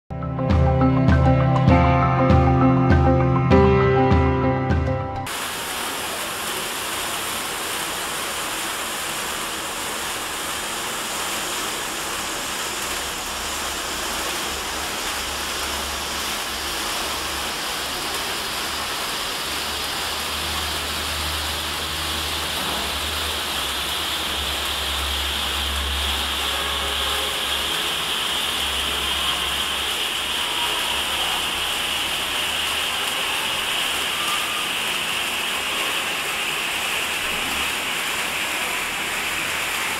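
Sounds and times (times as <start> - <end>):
sparklers hissing: 19.4 - 39.9.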